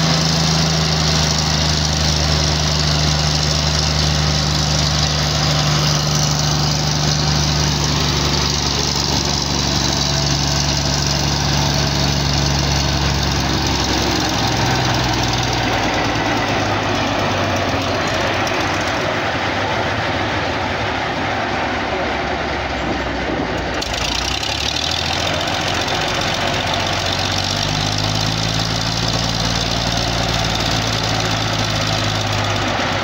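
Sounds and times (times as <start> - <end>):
diesel locomotive engine running: 0.0 - 33.0.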